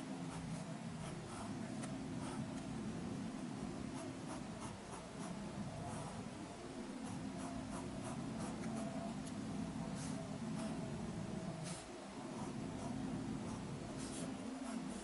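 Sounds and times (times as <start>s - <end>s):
low steady hum: 0.0s - 15.0s
pen nib scratching on paper: 0.3s - 2.6s, 3.9s - 6.2s, 7.0s - 9.1s, 9.9s - 10.8s, 11.6s - 15.0s.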